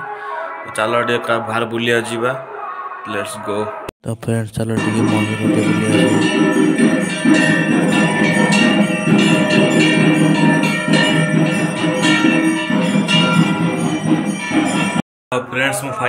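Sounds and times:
bells struck in a steady beat: 0:04.8 - 0:15.0
devotional music: 0:04.8 - 0:15.0.

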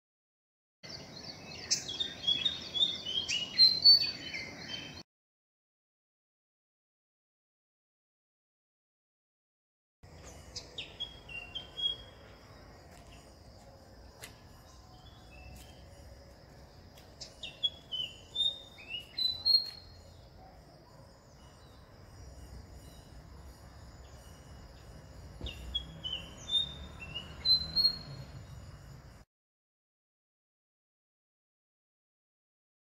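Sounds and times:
bird whistling song: 0:01.5 - 0:05.0, 0:10.8 - 0:12.1, 0:17.2 - 0:20.1, 0:25.4 - 0:28.4.

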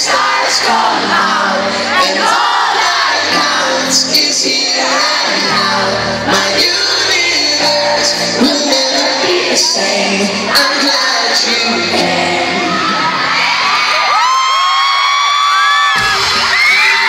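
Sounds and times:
person singing into a microphone: 0:00.0 - 0:13.1
crowd screaming and shouting: 0:00.0 - 0:17.0
live pop band music: 0:00.0 - 0:17.0.

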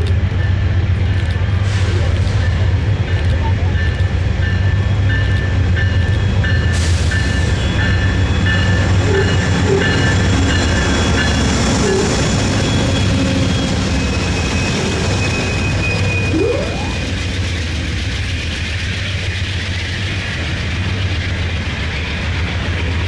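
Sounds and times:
diesel locomotive engine rumble: 0:00.0 - 0:23.0
rail noise: 0:00.0 - 0:23.0.

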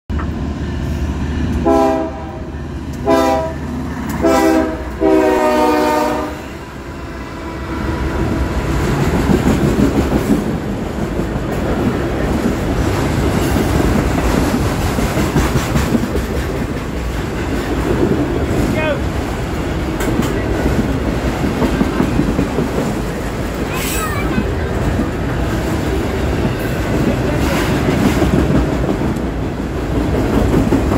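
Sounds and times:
locomotive air horn blasts: 0:01.6 - 0:02.4, 0:03.0 - 0:03.6, 0:04.2 - 0:06.5
freight cars rumbling and clattering: 0:07.6 - 0:30.9.

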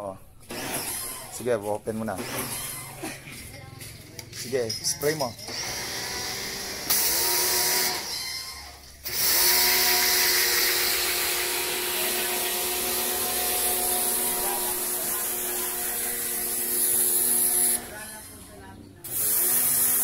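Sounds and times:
pump motor whine: 0:05.5 - 0:18.3.

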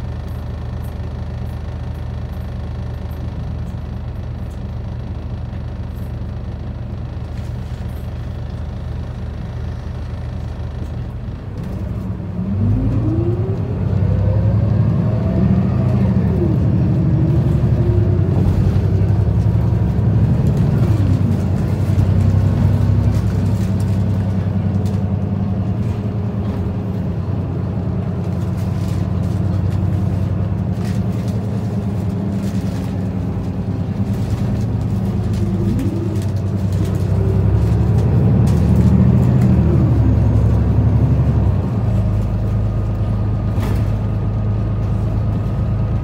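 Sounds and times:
bus diesel engine idling and revving: 0:00.0 - 0:46.0.

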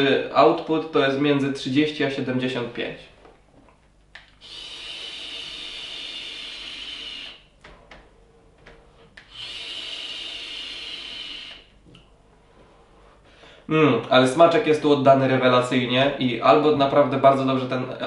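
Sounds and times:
vape hissing on draw: 0:04.4 - 0:07.4, 0:09.2 - 0:11.7.

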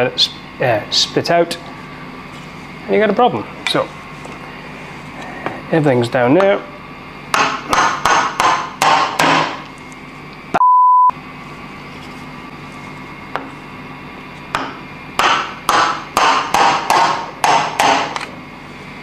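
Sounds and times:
beep tone: 0:10.6 - 0:11.1.

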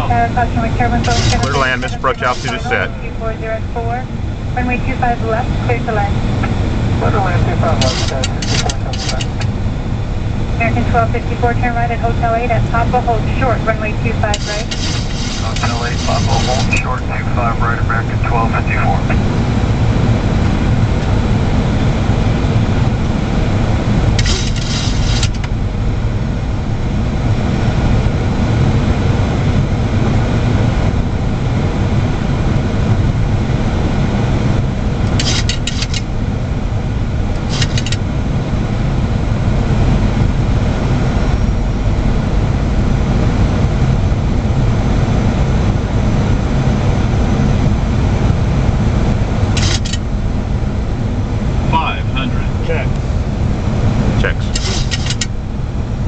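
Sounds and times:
airliner cockpit rumble: 0:00.0 - 0:56.0
crackling hiss bursts: 0:14.4 - 0:16.8.

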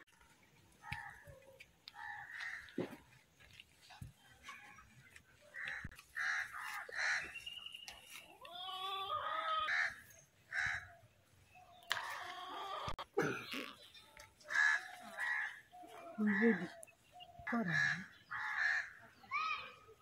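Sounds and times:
crows cawing: 0:00.8 - 0:02.8, 0:05.5 - 0:07.4, 0:09.0 - 0:11.0, 0:14.5 - 0:16.8, 0:17.5 - 0:19.1.

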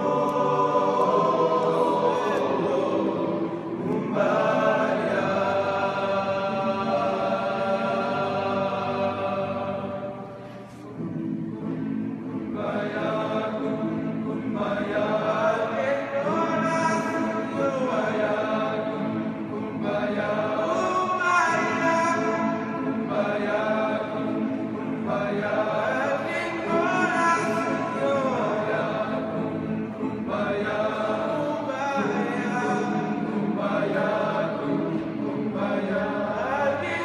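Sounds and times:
men's choir singing a cappella: 0:00.0 - 0:37.0.

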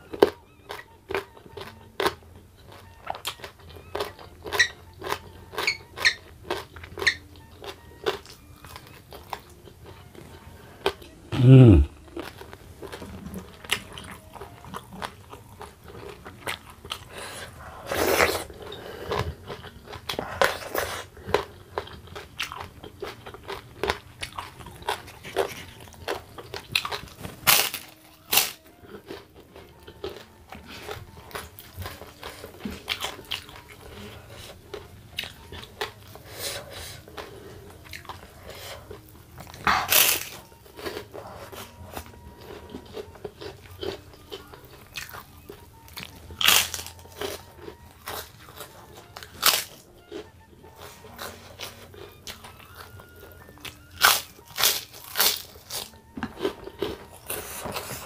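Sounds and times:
chewing crispy crackers: 0:00.0 - 0:58.0
loud crunching bites: 0:26.8 - 0:29.2.

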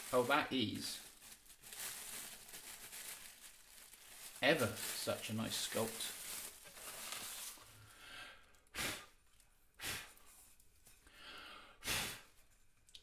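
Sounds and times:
man sighing breaths: 0:07.8 - 0:09.1, 0:11.0 - 0:12.3.

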